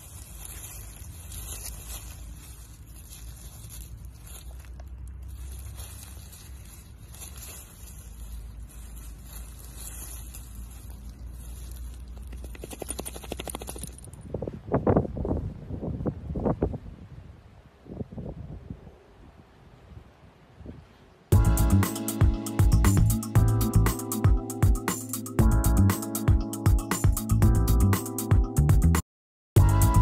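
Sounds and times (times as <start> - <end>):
dry leaves crackling and rustling: 0.0 - 14.1.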